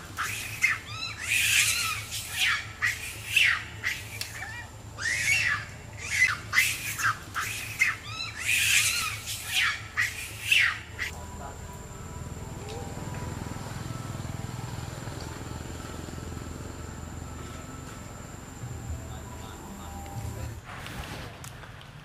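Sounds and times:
monkey screaming: 0:00.0 - 0:11.2.

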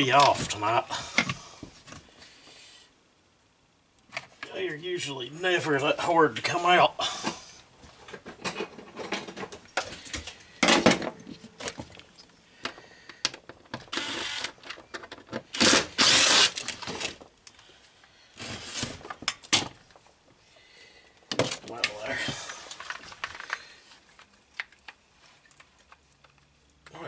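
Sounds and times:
impact driver bursts: 0:13.9 - 0:14.6, 0:15.5 - 0:16.6.

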